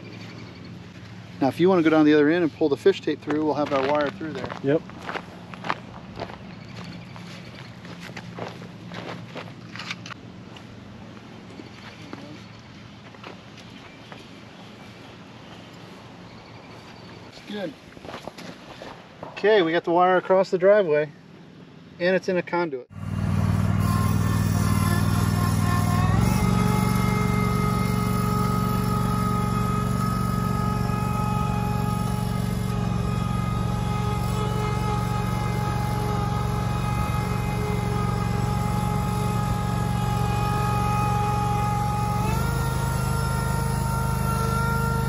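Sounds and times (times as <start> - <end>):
small tractor engine running: 22.9 - 45.0.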